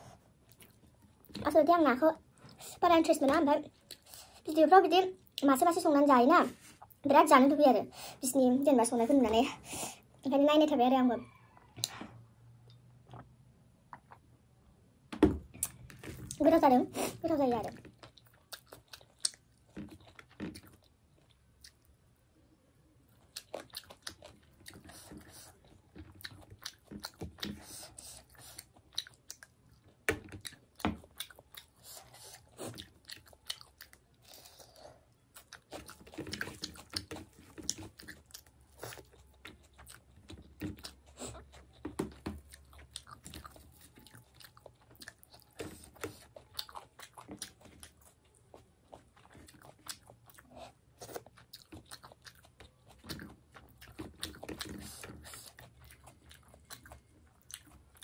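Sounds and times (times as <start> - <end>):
person chewing food: 0.0 - 1.5, 3.6 - 4.5, 12.6 - 14.6, 15.5 - 22.2, 23.0 - 58.0.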